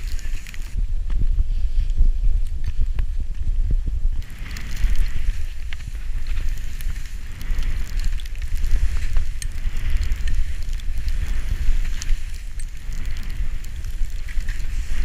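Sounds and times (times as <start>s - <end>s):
skis hissing through snow: 0.0s - 0.8s, 4.2s - 15.0s
wind buffeting microphone: 0.0s - 15.0s.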